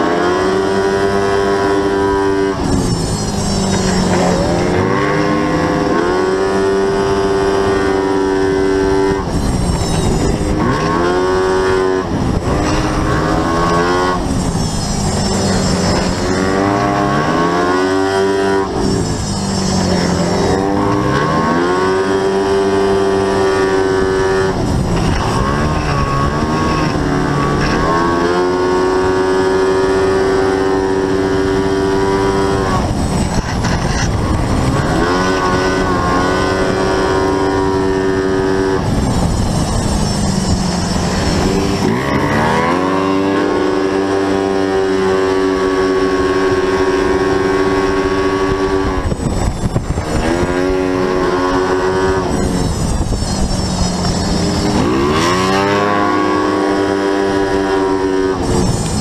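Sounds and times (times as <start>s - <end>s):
scooter engine at high revs: 0.0s - 59.0s.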